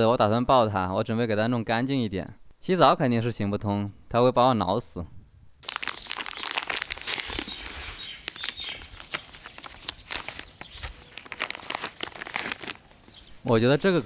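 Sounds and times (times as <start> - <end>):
packet tearing and crinkling: 5.6 - 13.3.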